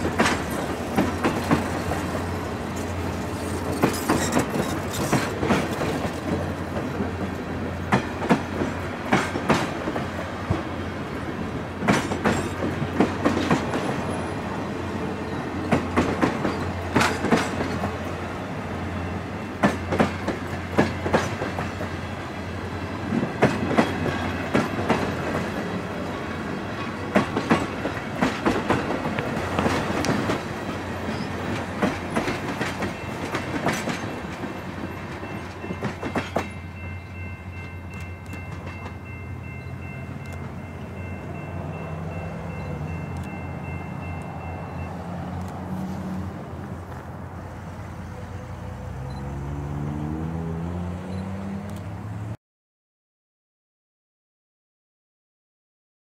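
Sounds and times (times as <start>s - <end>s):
train wheels clicking over rail joints: 0.0s - 14.5s, 15.2s - 18.2s, 19.2s - 22.0s, 23.0s - 39.1s.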